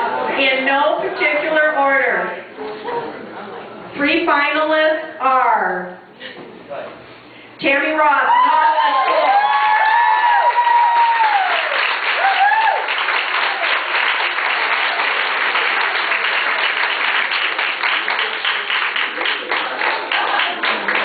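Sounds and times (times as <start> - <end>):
high whoops: 8.2 - 13.0
audience applauding: 8.8 - 21.0.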